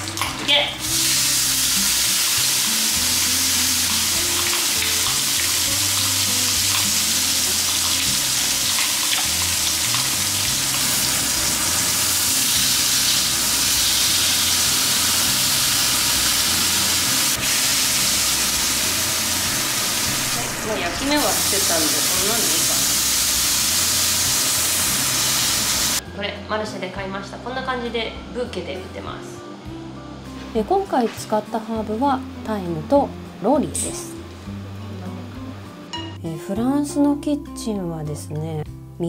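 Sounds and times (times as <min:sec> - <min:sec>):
meat sizzling in a frying pan: 0:00.0 - 0:26.0
soft background music: 0:00.0 - 0:39.0.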